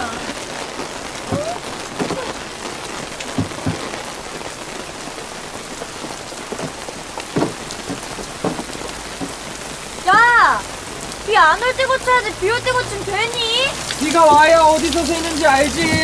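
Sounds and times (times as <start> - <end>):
rain on hard surfaces: 0.0 - 16.0
short knocks: 3.2 - 4.1, 6.5 - 10.7.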